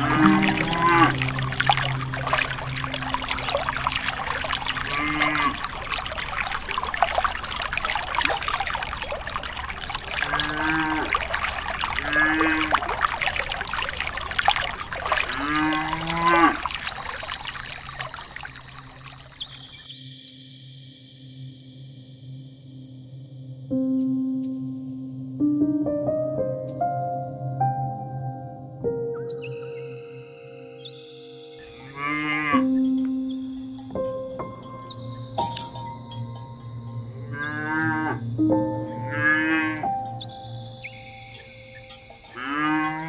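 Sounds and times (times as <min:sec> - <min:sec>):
cow mooing: 0:00.0 - 0:02.1, 0:04.8 - 0:05.7, 0:10.2 - 0:11.1, 0:12.0 - 0:12.7, 0:15.2 - 0:16.7, 0:31.8 - 0:32.8, 0:37.2 - 0:38.2, 0:39.1 - 0:39.8, 0:42.4 - 0:43.0
water pouring into small pool: 0:00.0 - 0:19.9, 0:33.8 - 0:36.9, 0:40.9 - 0:43.0.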